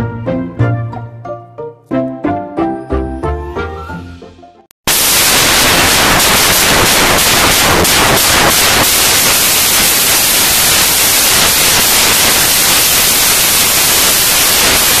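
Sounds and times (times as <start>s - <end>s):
static hiss: 4.9s - 15.0s.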